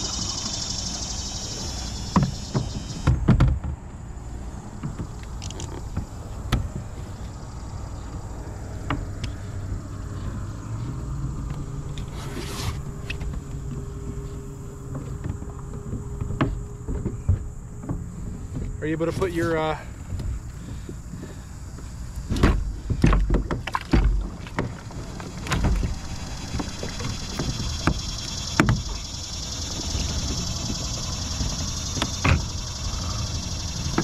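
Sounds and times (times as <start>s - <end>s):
kayak pedal drive whirring: 0.0s - 3.3s, 19.9s - 34.0s.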